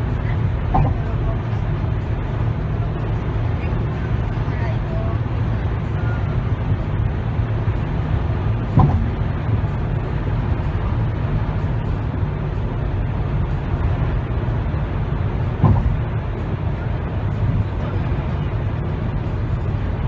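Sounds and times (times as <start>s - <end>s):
car cabin road and engine noise: 0.0s - 20.0s
brief thump: 0.7s - 1.0s, 8.7s - 9.2s, 15.6s - 16.0s.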